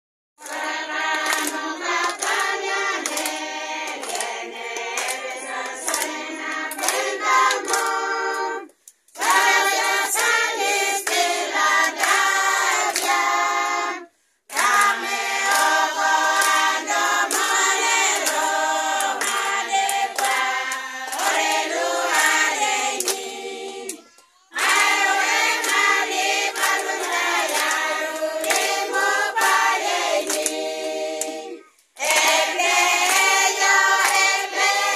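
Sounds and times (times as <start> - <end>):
hands clapping: 0.4 - 13.6, 14.5 - 34.9
women singing a cappella: 0.4 - 34.9.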